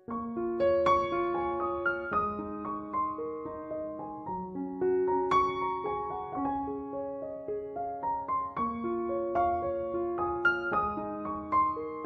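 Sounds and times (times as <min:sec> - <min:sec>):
gentle piano melody: 0:00.0 - 0:12.0.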